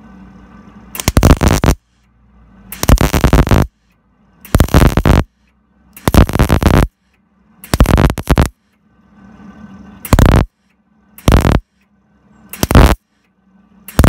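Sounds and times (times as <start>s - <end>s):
welder arcing on steel: 1.0s - 1.9s, 2.7s - 3.7s, 4.4s - 5.3s, 6.0s - 7.0s, 7.6s - 8.6s, 10.0s - 10.6s, 11.2s - 11.7s, 12.5s - 13.1s.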